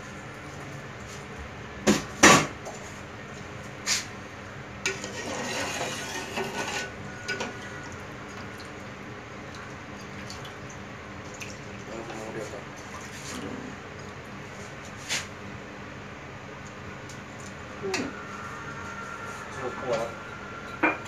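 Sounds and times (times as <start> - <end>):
stirring rice in pot: 4.9 - 7.0.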